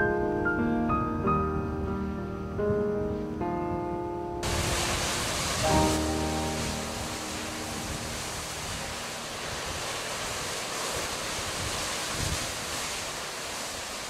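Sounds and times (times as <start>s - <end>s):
surf washing over rocks: 4.4s - 14.0s
wind buffeting microphone: 4.4s - 14.0s.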